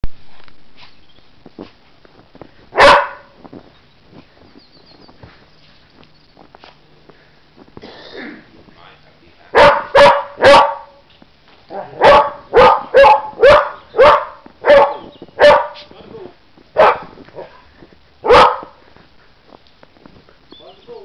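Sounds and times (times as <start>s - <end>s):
dog barking: 2.8s - 3.3s, 9.5s - 11.0s, 11.7s - 15.9s, 16.8s - 17.6s, 18.2s - 18.8s.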